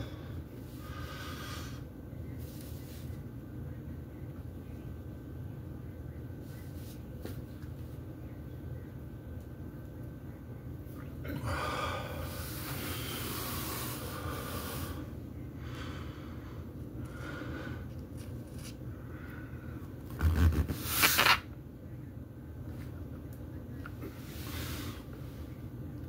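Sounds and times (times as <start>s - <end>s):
man breathing hard: 0.0s - 1.9s, 11.3s - 17.9s.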